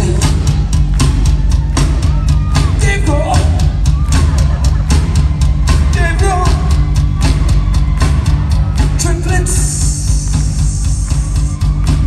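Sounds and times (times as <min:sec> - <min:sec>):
lead vocal: 0:00.0 - 0:00.5
drum beat: 0:00.0 - 0:12.0
rock band playing live: 0:00.0 - 0:12.0.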